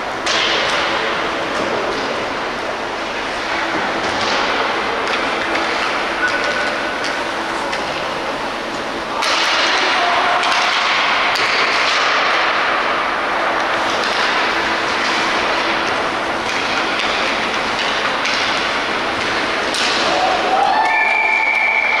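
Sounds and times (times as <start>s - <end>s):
hockey sticks and puck clacking: 0.2s - 2.2s, 3.3s - 8.2s, 9.1s - 22.0s.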